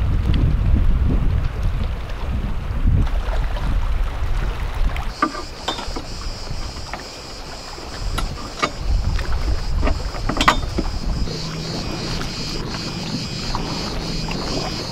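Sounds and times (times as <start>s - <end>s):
wind buffeting microphone: 0.0s - 14.9s
knocks and clicks of gear: 5.1s - 7.1s, 8.0s - 11.4s
steady high buzz: 5.1s - 14.9s.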